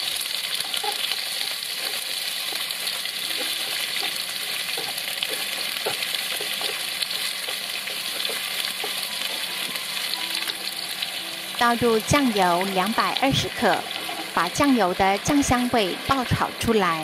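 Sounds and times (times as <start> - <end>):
food sizzling in hot oil: 0.0 - 17.0
chopsticks tapping and scraping pan: 0.5 - 10.7, 13.4 - 14.7.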